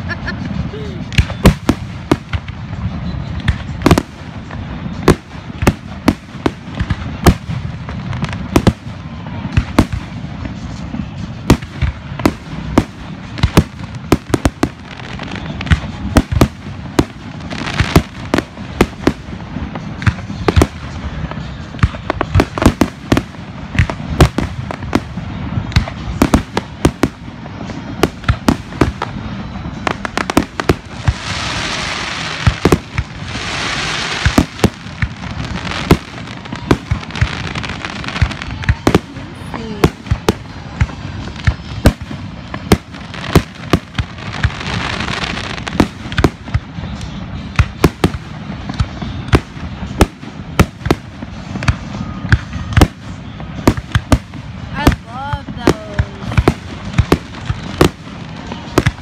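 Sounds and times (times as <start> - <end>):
fireworks bangs: 0.0 - 59.0
fireworks hissing crackle: 0.0 - 59.0.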